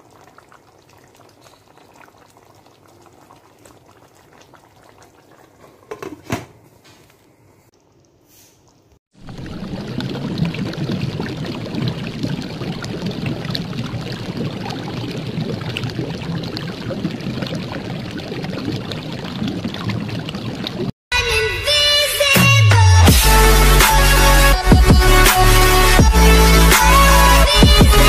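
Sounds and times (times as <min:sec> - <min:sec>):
cooking liquid bubbling hiss: 0:00.0 - 0:06.4, 0:07.3 - 0:20.9.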